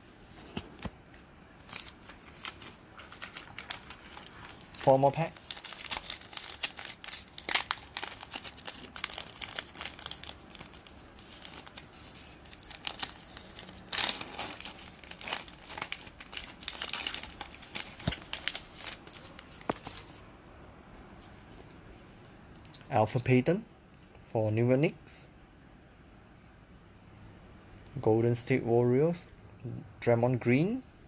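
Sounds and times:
foil wrapper tearing and crinkling: 0:01.6 - 0:20.1.

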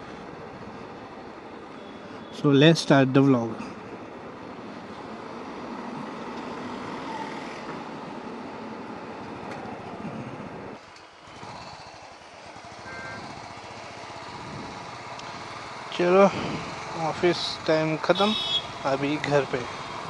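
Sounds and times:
motorcycle engine: 0:09.5 - 0:20.0.

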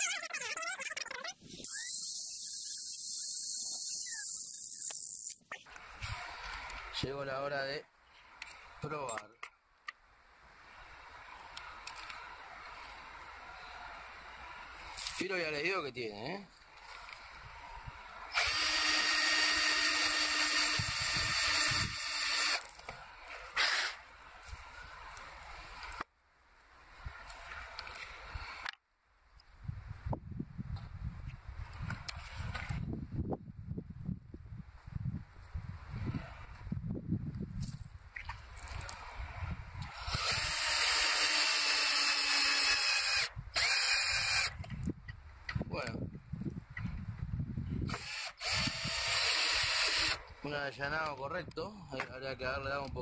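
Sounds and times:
power drill cutting wood: 0:01.6 - 0:05.3, 0:18.3 - 0:22.6, 0:23.6 - 0:24.0, 0:39.9 - 0:44.5, 0:47.9 - 0:50.2.

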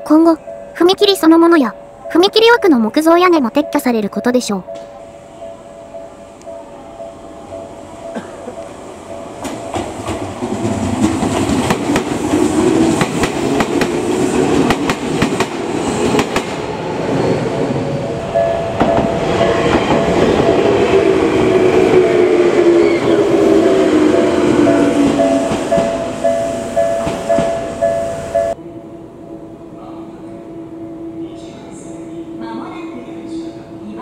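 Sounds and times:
electric trains running: 0:00.0 - 0:34.0
train wheels clicking over rail joints: 0:09.4 - 0:16.6, 0:24.8 - 0:27.8.

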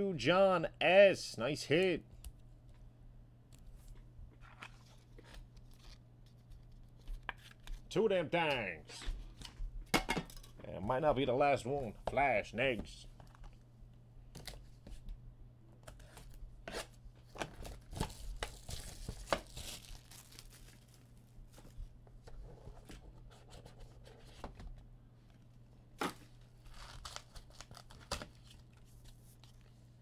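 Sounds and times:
low steady hum: 0:00.0 - 0:30.0
foil wrappers tearing and crinkling: 0:17.2 - 0:21.1, 0:26.6 - 0:28.8.

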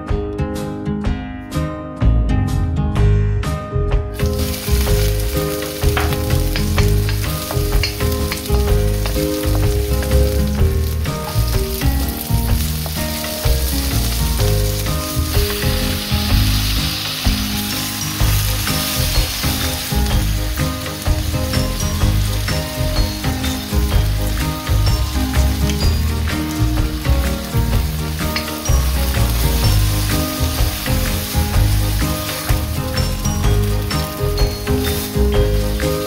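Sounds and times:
onions sizzling in oil: 0:04.2 - 0:36.0
wooden spatula scraping wok: 0:04.2 - 0:36.0.

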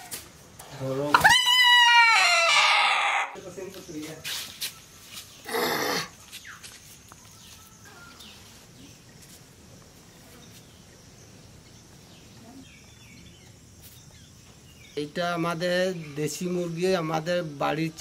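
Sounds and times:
rooster squawk: 0:01.1 - 0:03.4
faint bird chirps: 0:04.6 - 0:09.3.

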